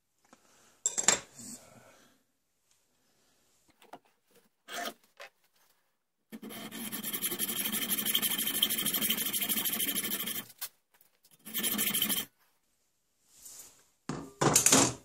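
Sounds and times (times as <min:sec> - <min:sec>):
hacksaw sawing steel: 0:06.4 - 0:10.5, 0:11.4 - 0:12.3.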